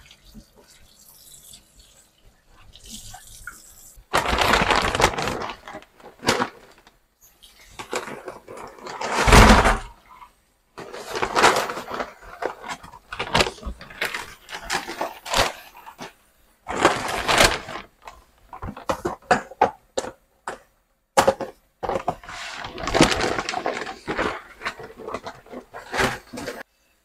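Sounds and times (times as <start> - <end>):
paper bag crinkling and rustling: 4.1 - 6.9, 7.7 - 9.9, 10.8 - 19.4, 21.8 - 26.7.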